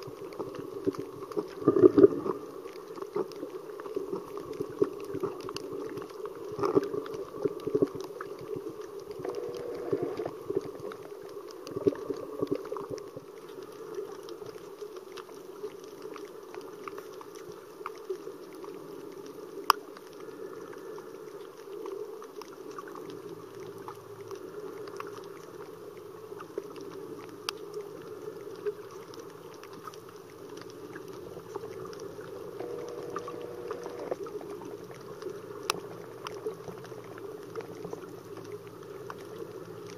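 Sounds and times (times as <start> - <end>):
sharp clicks and crackles: 0.0 - 25.7, 26.3 - 39.9
low underwater rushing hum: 0.0 - 39.9.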